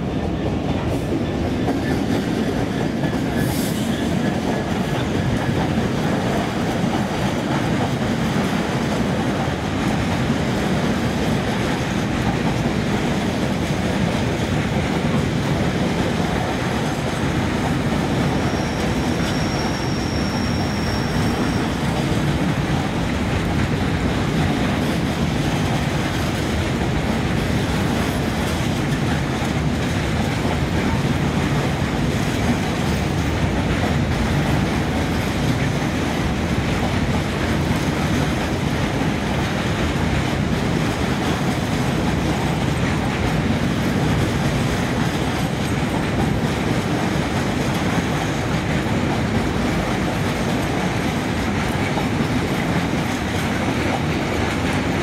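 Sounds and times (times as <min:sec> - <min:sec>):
train wheels clickety-clack: 0:00.0 - 0:55.0
thin high squeal: 0:18.4 - 0:21.8.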